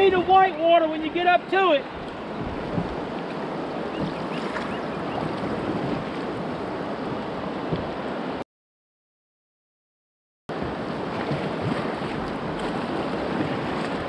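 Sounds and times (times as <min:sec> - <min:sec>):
river current rushing: 0:00.0 - 0:08.4, 0:10.5 - 0:14.0
paddle blades dipping into water: 0:01.9 - 0:08.2, 0:10.5 - 0:14.0.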